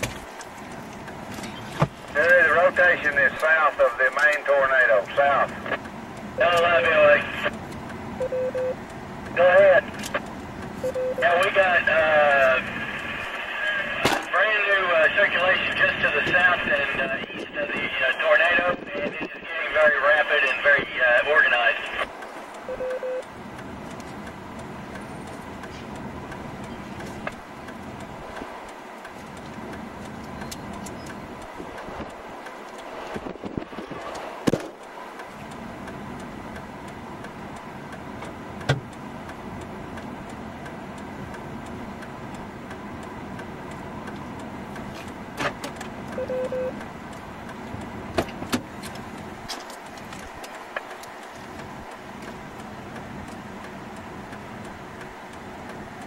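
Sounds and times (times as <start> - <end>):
idling vehicle hum: 0.0 - 56.0
short beeps: 8.2 - 8.8, 10.8 - 11.2, 22.7 - 23.3, 46.2 - 46.8.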